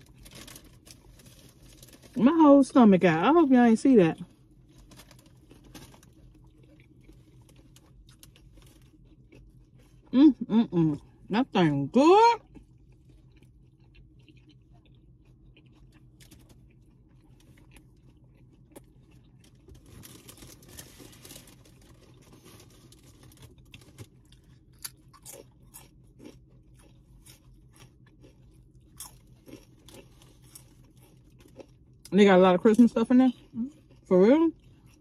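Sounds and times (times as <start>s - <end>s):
chewing and crunching sandwich: 0.0s - 35.0s
steady low hum: 0.0s - 35.0s.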